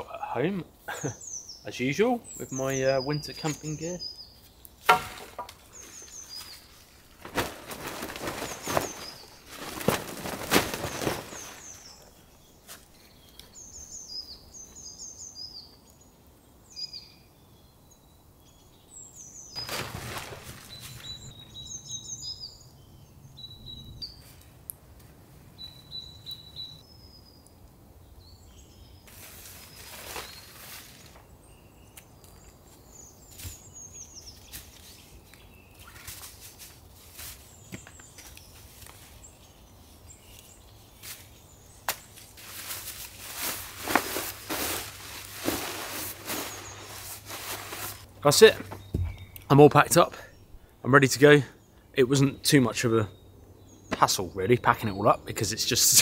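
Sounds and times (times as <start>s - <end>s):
small birds chirping: 0.0s - 56.0s
tarp rustling: 4.9s - 12.2s, 19.6s - 21.4s, 29.1s - 31.3s, 42.1s - 48.7s.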